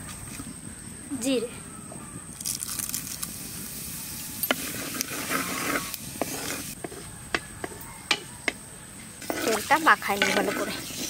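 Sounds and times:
seeds sizzling in hot oil: 0:02.4 - 0:06.8, 0:09.2 - 0:11.0
wooden spatula knocking pot: 0:06.2 - 0:08.6, 0:09.2 - 0:10.8.

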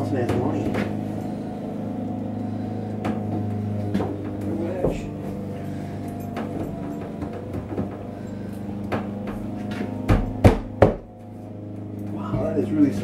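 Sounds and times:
steady low hum: 0:00.0 - 0:13.0
sharp knocks: 0:08.9 - 0:11.1.

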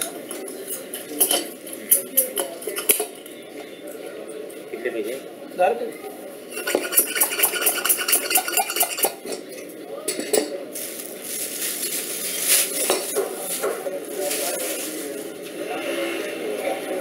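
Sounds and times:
plastic bag rustling: 0:10.7 - 0:15.4.

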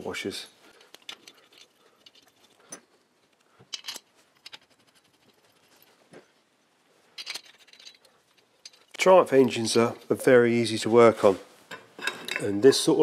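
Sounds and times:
small metal clicks and clinks: 0:00.8 - 0:04.7, 0:07.2 - 0:09.1.

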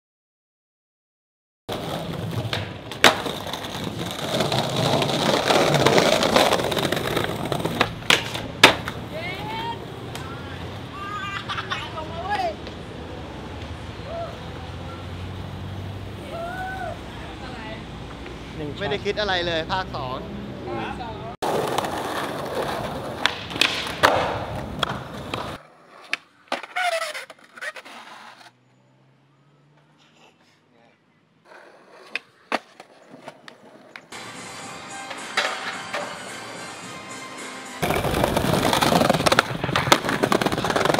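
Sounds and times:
skateboard clacking: 0:01.7 - 0:10.7, 0:21.4 - 0:28.4, 0:35.1 - 0:36.4, 0:37.8 - 0:40.9
skateboard wheels rolling on pavement: 0:01.7 - 0:28.6, 0:31.4 - 0:40.9.

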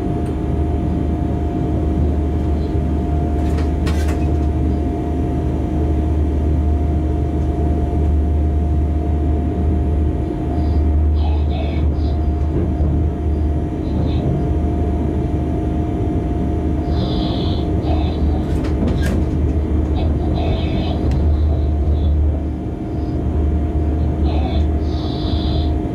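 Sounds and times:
locomotive cab drone: 0:00.0 - 0:25.9
rolling rail noise: 0:00.0 - 0:25.9.

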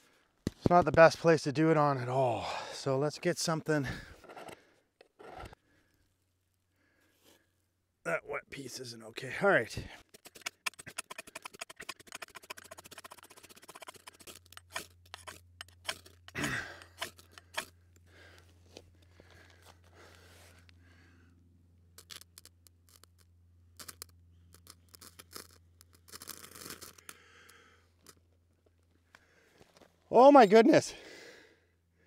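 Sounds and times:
knife scraping ferro rod: 0:04.2 - 0:05.6, 0:10.0 - 0:17.8.

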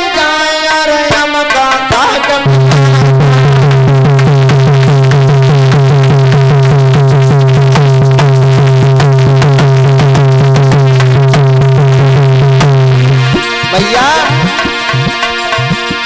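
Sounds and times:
dholak drumming: 0:00.0 - 0:16.0
fast repeating melody: 0:01.1 - 0:16.0.

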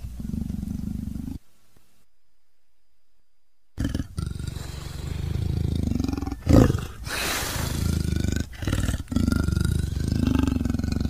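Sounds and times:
tiger growling: 0:00.0 - 0:01.4, 0:03.8 - 0:11.0
tiger hissing snarl: 0:03.8 - 0:11.0.

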